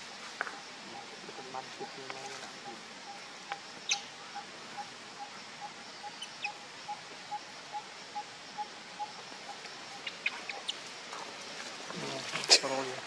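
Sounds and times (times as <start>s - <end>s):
steady outdoor hiss: 0.0s - 13.0s
high bird chirps: 3.8s - 7.0s.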